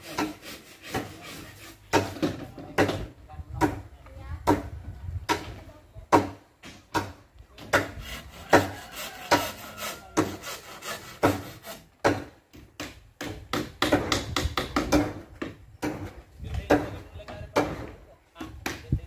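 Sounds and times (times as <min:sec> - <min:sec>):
wood rubbing: 0:00.0 - 0:03.0, 0:07.6 - 0:12.2
wood and bamboo knocking: 0:01.9 - 0:19.0.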